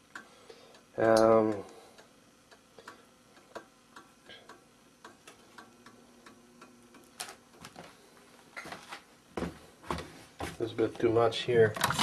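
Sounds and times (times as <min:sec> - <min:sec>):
faint ticking clicks: 0:00.0 - 0:07.3.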